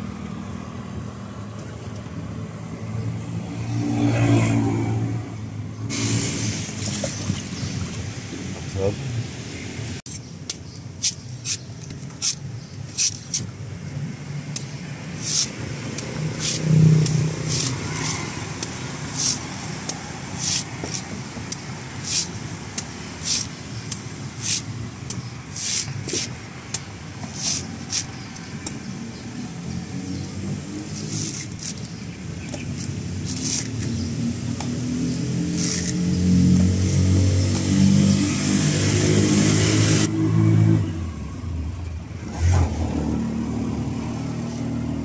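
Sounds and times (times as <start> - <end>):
cleaver chopping coconut husk: 14.3 - 29.3, 29.9 - 38.0.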